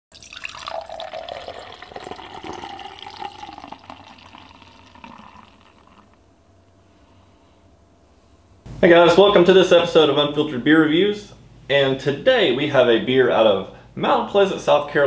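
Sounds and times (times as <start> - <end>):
beer pouring into glass: 0.1 - 6.2.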